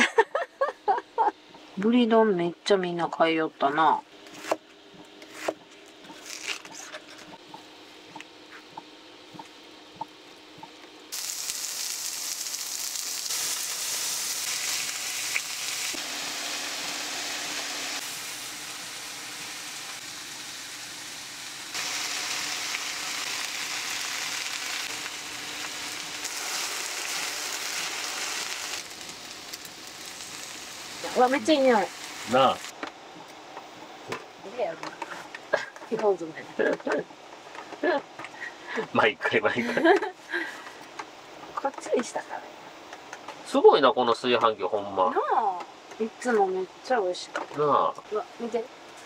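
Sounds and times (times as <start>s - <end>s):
food sizzling in frying pan: 11.1s - 32.8s.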